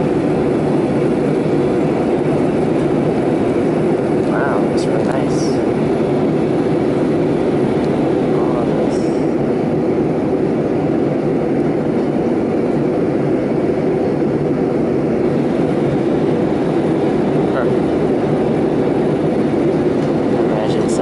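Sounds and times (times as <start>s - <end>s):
airliner engine rumble in cabin: 0.0s - 21.0s.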